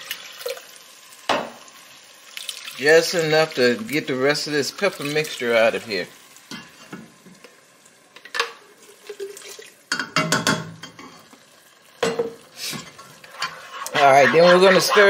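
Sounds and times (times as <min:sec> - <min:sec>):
liquid pouring: 0:00.0 - 0:00.8, 0:02.2 - 0:03.9, 0:08.7 - 0:09.9.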